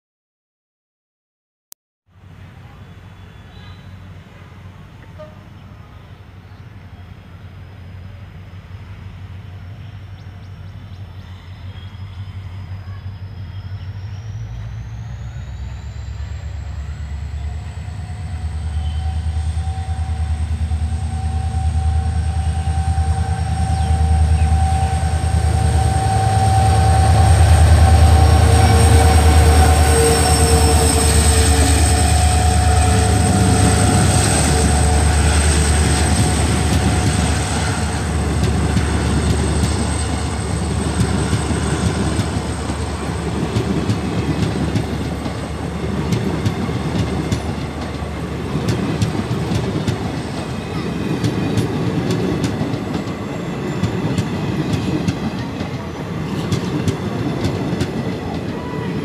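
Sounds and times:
diesel locomotive engine rumble: 0:02.1 - 0:59.0
train wheels rolling: 0:10.2 - 0:59.0
high whine: 0:12.6 - 0:54.0.

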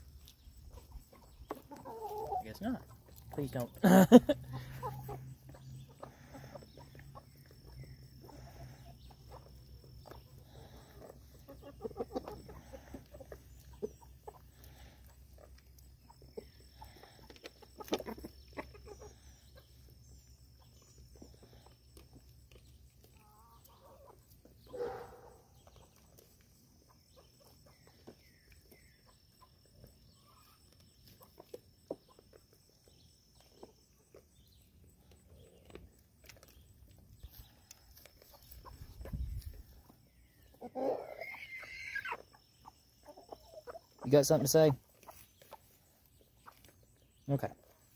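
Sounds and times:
animals pecking grain in trough: 0:00.0 - 0:47.9
chickens clucking: 0:00.0 - 0:47.9
loud chicken call: 0:40.6 - 0:42.2.

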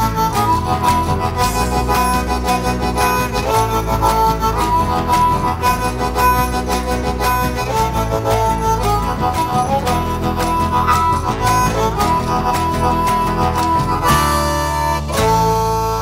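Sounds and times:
bass guitar: 0:00.0 - 0:16.0
guitar: 0:00.0 - 0:16.0
harmonica melody: 0:00.0 - 0:16.0.

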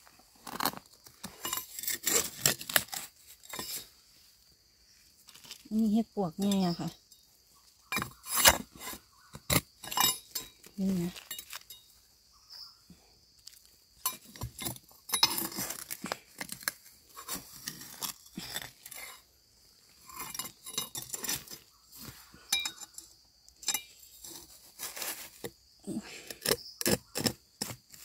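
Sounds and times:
knife scraping soil: 0:00.0 - 0:04.1, 0:07.8 - 0:11.8, 0:13.4 - 0:19.3, 0:19.9 - 0:28.0
metal clinking on stone: 0:09.8 - 0:11.9, 0:22.5 - 0:24.0.

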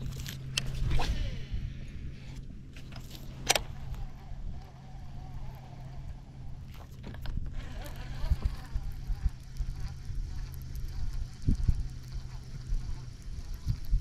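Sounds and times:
sharp reel clicks: 0:02.8 - 0:14.0
fishing reel whirring: 0:03.0 - 0:14.0.

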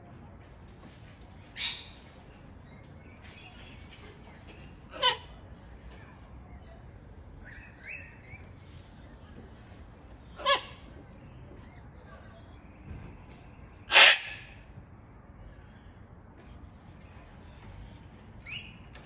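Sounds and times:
cockatoo squawking: 0:04.9 - 0:05.4, 0:10.3 - 0:10.8, 0:13.9 - 0:14.5.

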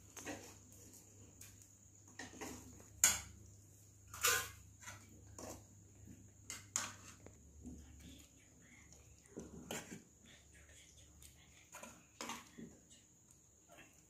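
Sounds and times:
metal ladle clinking and scraping: 0:04.1 - 0:05.6.

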